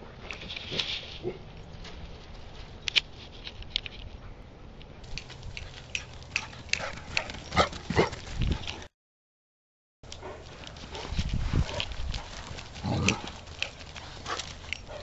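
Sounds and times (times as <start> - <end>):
dogs playing: 5.1 - 8.9, 10.1 - 15.0.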